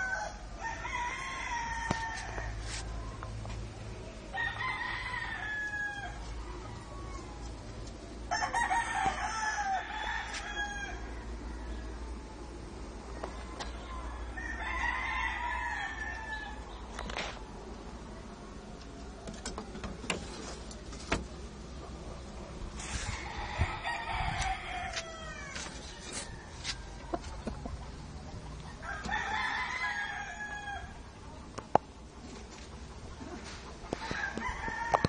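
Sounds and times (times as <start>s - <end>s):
roosters crowing: 0.0s - 3.2s, 4.3s - 7.6s, 8.2s - 16.9s, 21.8s - 31.2s, 32.8s - 35.0s.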